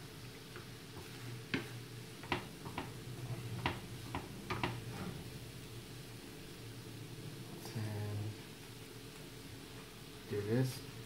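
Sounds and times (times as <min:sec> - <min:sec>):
steady low hum: 0:00.0 - 0:11.0
spatula tapping a frying pan: 0:01.5 - 0:03.0, 0:03.6 - 0:04.8.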